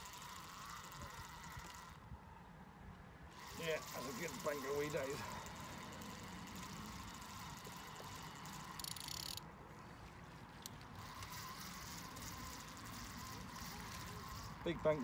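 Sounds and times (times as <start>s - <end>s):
fishing reel winding: 0.0s - 2.0s, 3.3s - 9.5s, 10.5s - 15.0s
reel ticking: 0.0s - 2.0s, 3.3s - 15.0s.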